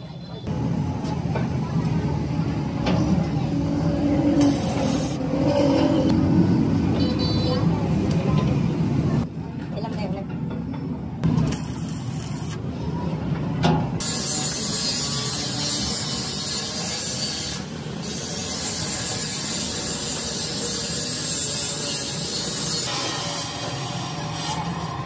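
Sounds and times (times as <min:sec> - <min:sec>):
welding arc crackling: 0:11.3 - 0:12.8, 0:14.0 - 0:25.0.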